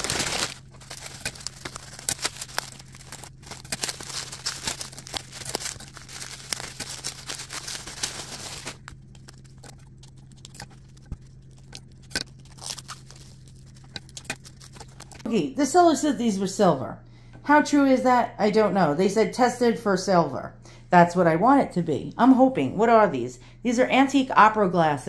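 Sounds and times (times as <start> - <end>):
bubble wrap crinkling: 0.0 - 15.3
steady low hum: 0.0 - 25.0.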